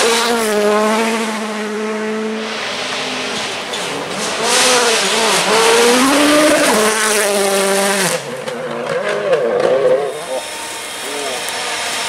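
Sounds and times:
rally car engine revving: 0.0 - 12.0
tyres hissing on gravel: 2.5 - 6.0.

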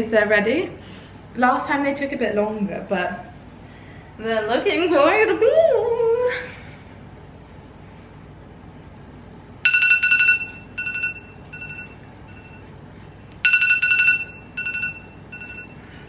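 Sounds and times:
timer alarm beeping: 9.6 - 12.7, 13.4 - 15.9.

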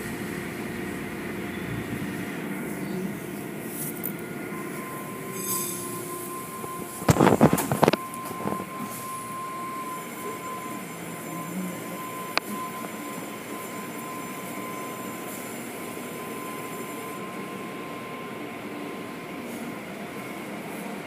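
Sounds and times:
muffled car wash machinery: 0.0 - 21.0
thin steady tone: 4.5 - 21.0.

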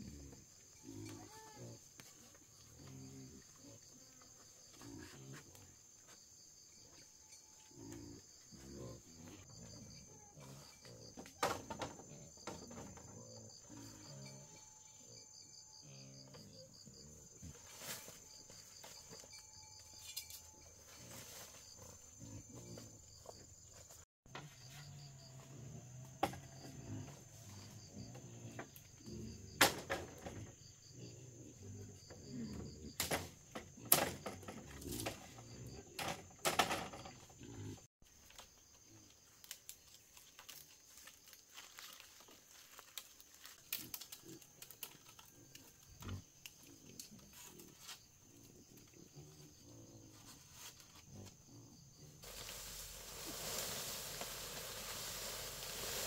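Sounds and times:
rustles: 0.0 - 12.3, 15.9 - 26.2, 36.8 - 56.0
wild boars grunting: 30.2 - 33.0
steady hiss: 52.2 - 56.0.

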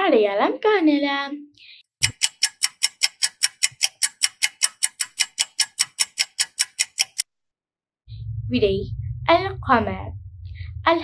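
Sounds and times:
clock-style ticking: 2.0 - 7.3.

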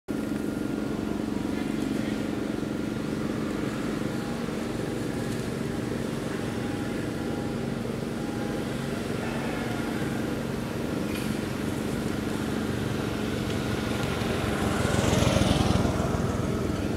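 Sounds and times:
low mechanical hum: 0.1 - 16.9.

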